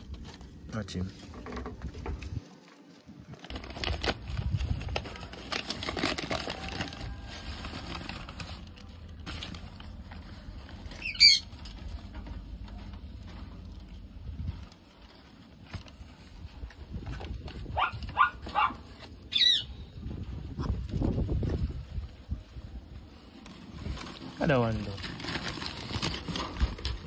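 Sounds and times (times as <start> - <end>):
scratching on cardboard and paper: 0.0 - 19.4, 20.2 - 27.0.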